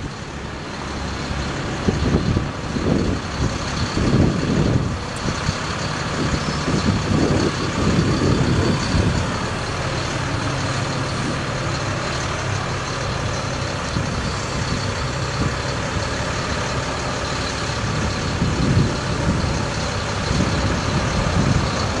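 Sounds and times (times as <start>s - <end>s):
truck engine running: 0.0s - 22.0s.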